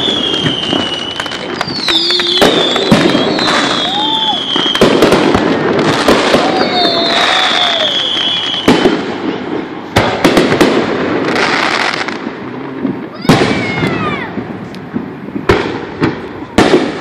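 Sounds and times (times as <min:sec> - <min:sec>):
firework crackling: 0:00.0 - 0:17.0.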